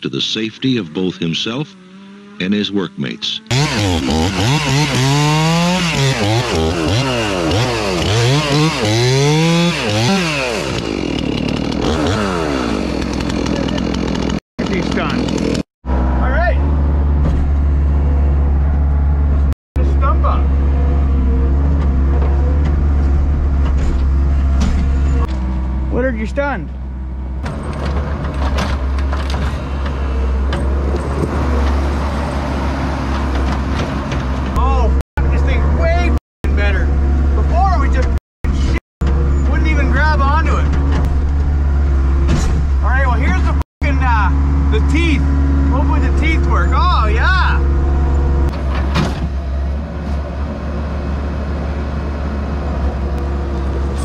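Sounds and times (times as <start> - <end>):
chainsaw cutting log: 3.5 - 15.7
skid steer engine running: 3.5 - 26.1, 26.7 - 54.0.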